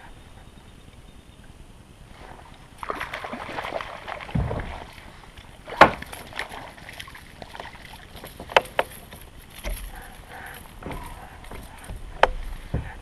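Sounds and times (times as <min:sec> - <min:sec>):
low thump on hull: 0:04.3 - 0:04.9, 0:05.7 - 0:06.3, 0:10.7 - 0:13.0.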